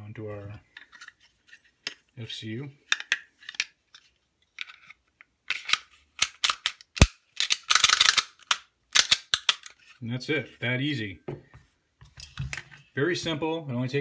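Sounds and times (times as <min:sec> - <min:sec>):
pistol slide snapping into place: 0:05.6 - 0:09.7.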